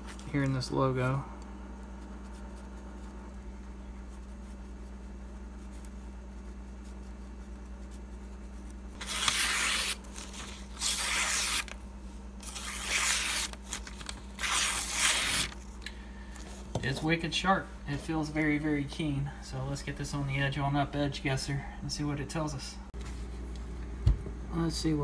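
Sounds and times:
knife slicing through paper: 9.0 - 11.8, 12.4 - 15.6.

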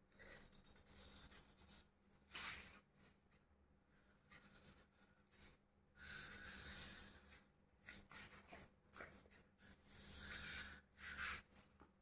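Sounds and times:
marker pen scratching on card: 0.2 - 1.8.

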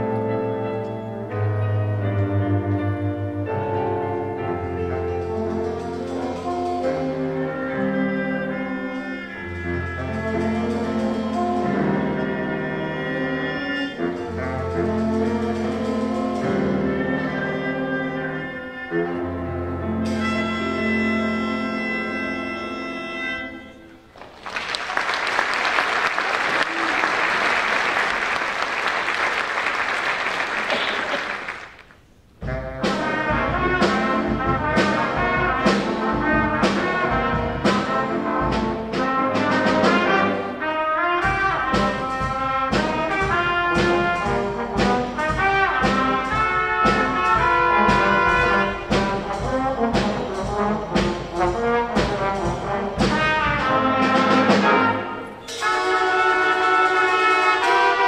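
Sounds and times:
brass band playing: 0.0 - 58.0
audience applauding: 24.1 - 32.0.

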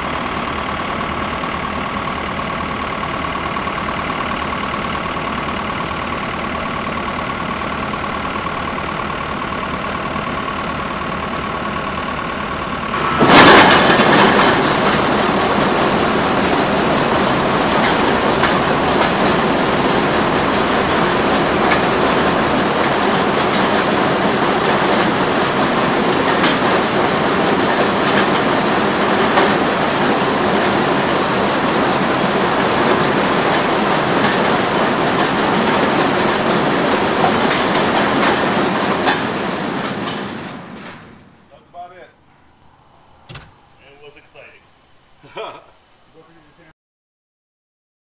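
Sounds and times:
tractor diesel engine running: 0.0 - 42.0
mechanical clatter: 13.0 - 41.4, 43.3 - 43.7.

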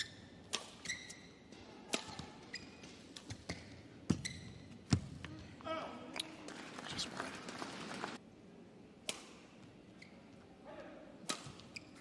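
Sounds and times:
shoes squeaking on court: 0.0 - 5.3, 9.9 - 10.4, 11.4 - 12.0
rackets hitting shuttlecock: 0.1 - 4.3, 9.0 - 9.5, 11.2 - 12.0.

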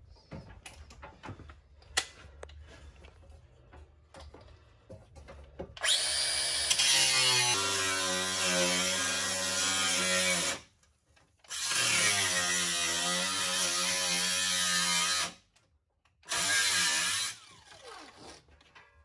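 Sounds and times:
power tool cutting steel: 5.8 - 10.7, 11.5 - 15.4, 16.3 - 18.4.

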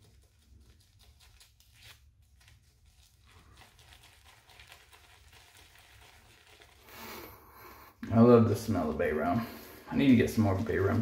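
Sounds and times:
shaving brush swirling on soap: 2.1 - 7.4, 8.1 - 11.0.

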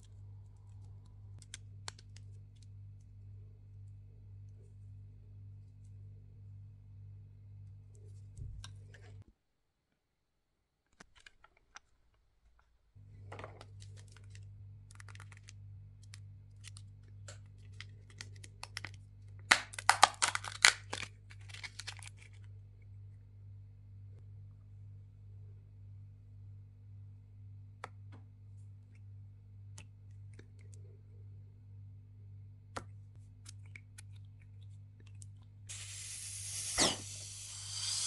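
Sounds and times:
plastic capsule clicking and crinkling: 0.6 - 2.7, 13.6 - 22.5, 32.8 - 35.5.

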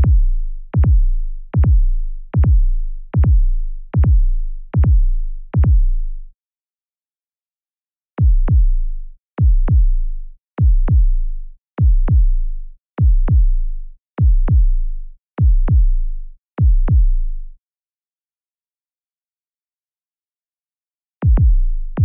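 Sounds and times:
heartbeat lub-dub: 0.0 - 6.0, 8.2 - 8.8, 9.4 - 10.0, 10.6 - 11.2, 11.8 - 12.4, 13.0 - 13.6, 14.2 - 14.8, 15.4 - 16.0, 16.6 - 17.2, 21.2 - 22.0.

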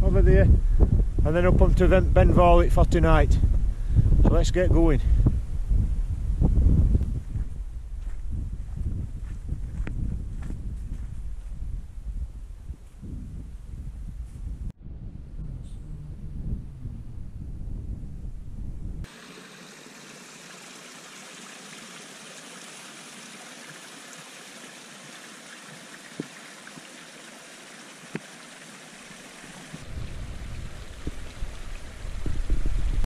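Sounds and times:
wind buffeting microphone: 0.0 - 19.1, 29.7 - 33.0
stream trickling over rocks: 19.1 - 33.0.

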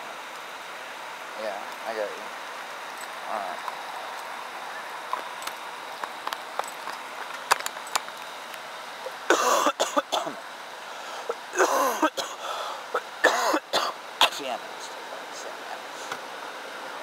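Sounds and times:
steady low hiss: 0.0 - 17.0
person coughing: 9.3 - 10.4, 11.6 - 12.4, 13.2 - 14.5.

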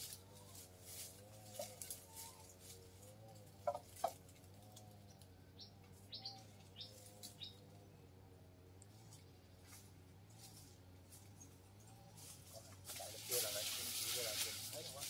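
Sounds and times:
faint wavering hum: 0.0 - 14.8
bird chirps: 5.0 - 7.9.

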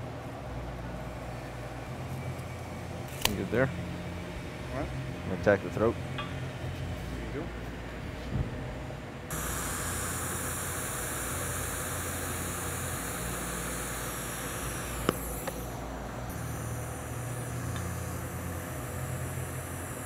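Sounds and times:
low hum: 9.3 - 20.0
welding arc hissing: 9.3 - 20.0.

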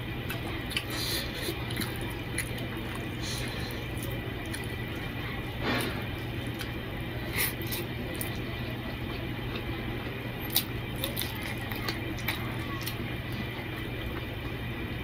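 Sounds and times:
ceiling fan hum: 0.0 - 15.0
wet eating sounds: 0.1 - 14.7.

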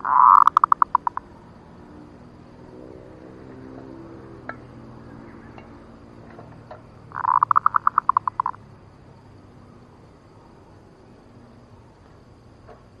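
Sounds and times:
dove staccato cooing: 0.0 - 1.7, 3.3 - 8.6.

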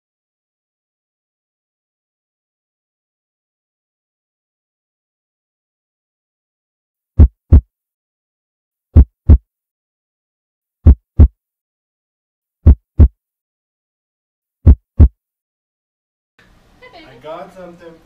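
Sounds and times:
deep double heartbeats: 7.2 - 7.6, 9.0 - 9.4, 10.8 - 11.3, 12.6 - 13.1, 14.6 - 15.1.

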